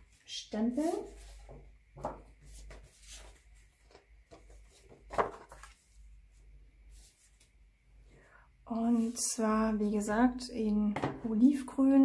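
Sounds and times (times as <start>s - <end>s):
paper rustling and rubbing: 0.7s - 6.2s, 6.8s - 7.6s.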